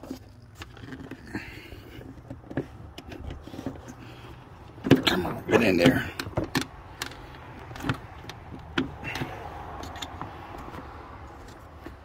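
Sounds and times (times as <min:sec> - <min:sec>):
plastic clicks and knocks: 0:04.7 - 0:10.9.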